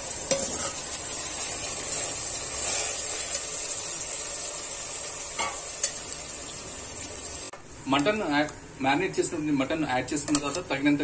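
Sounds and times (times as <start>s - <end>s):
meat sizzling in hot oil: 0.0s - 7.5s.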